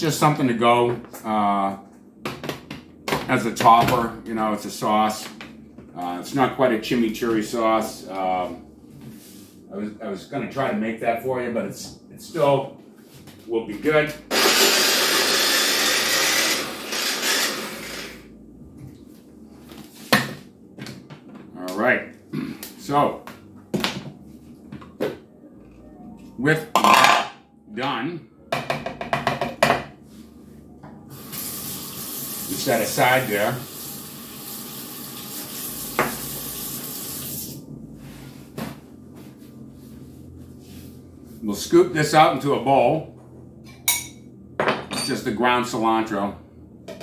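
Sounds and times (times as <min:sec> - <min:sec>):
electric food chopper grinding: 0:14.3 - 0:18.3
tap water running: 0:31.1 - 0:37.6.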